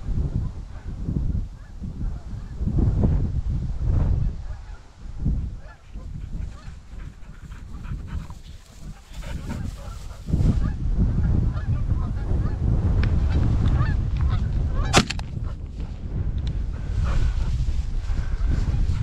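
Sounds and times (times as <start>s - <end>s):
wind buffeting microphone: 0.0s - 19.0s
sharp click: 14.9s - 15.3s.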